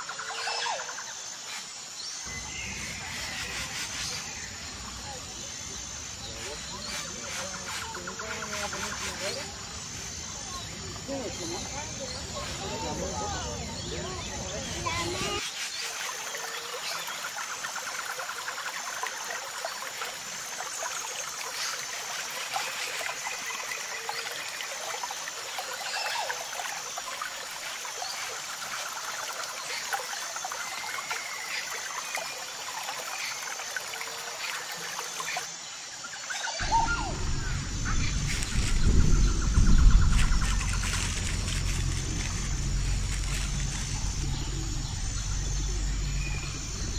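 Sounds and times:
water trickling and bubbling: 14.0 - 46.9.

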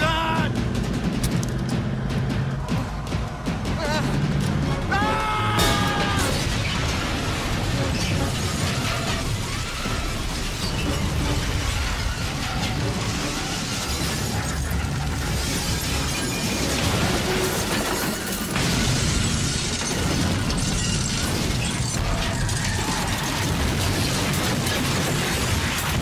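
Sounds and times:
crashing metal: 2.4 - 26.0
shattering glass: 5.6 - 26.0
explosion blasts: 18.5 - 26.0.

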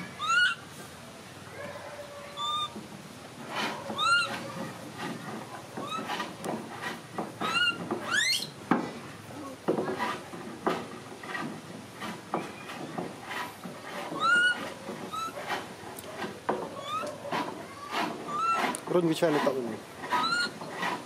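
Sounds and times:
baby monkey squeaky calls: 0.0 - 0.7, 2.2 - 2.8, 3.6 - 4.5, 5.8 - 6.3, 7.4 - 8.6, 14.1 - 15.4, 16.8 - 17.2, 17.9 - 18.7, 20.1 - 20.9.

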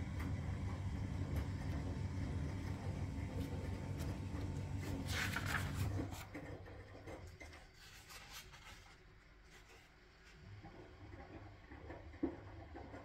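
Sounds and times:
paper rustling and crinkling: 3.4 - 6.5, 7.6 - 10.4.

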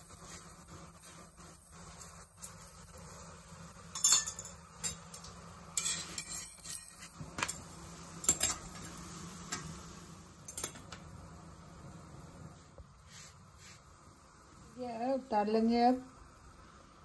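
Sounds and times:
faint sizzle: 0.0 - 17.0
spoon spreading oil on griddle: 3.9 - 7.6.

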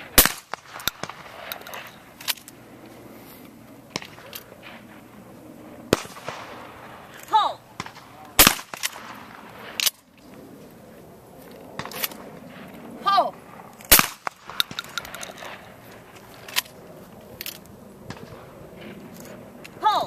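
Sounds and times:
shotgun blasts: 0.0 - 1.9, 5.9 - 10.0, 13.9 - 15.7
faint distant shots: 0.0 - 3.0, 3.8 - 10.3, 11.2 - 19.7
person shouting: 7.3 - 7.6, 13.0 - 13.3, 19.8 - 20.0.

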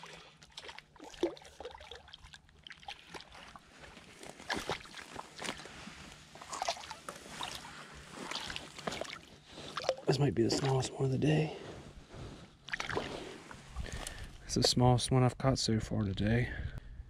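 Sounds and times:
fish splashing in water: 0.0 - 3.6, 4.2 - 10.1, 12.7 - 14.1.

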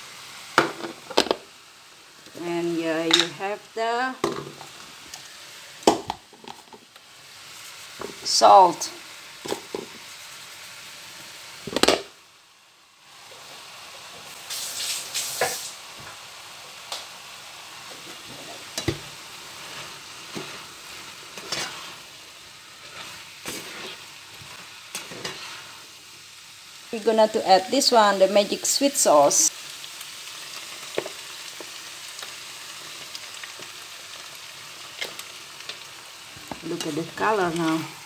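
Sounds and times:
noodles sizzling in a frying pan: 0.0 - 38.0
spatula scraping and tapping: 21.4 - 21.9.

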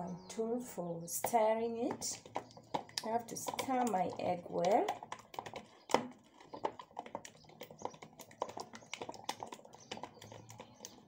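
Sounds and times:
whisk tapping plastic bowl: 1.1 - 11.0.

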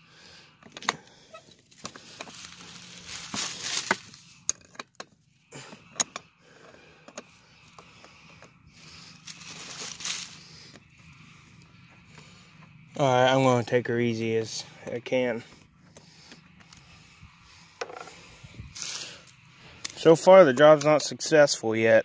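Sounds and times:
dry leaves rustling and crunching: 1.7 - 4.3, 8.8 - 10.7, 18.8 - 19.3.

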